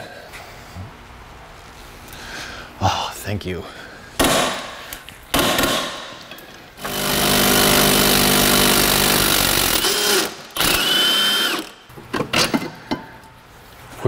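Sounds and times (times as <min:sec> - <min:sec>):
impact wrench hammering: 0:04.2 - 0:12.6.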